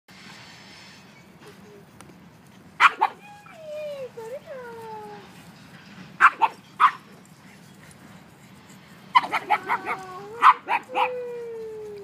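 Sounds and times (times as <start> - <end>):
dog barking: 2.8 - 3.2, 6.2 - 7.0, 9.2 - 11.1
dog yipping: 2.8 - 3.6, 6.2 - 7.1, 9.1 - 11.3
dog whining: 9.2 - 12.0.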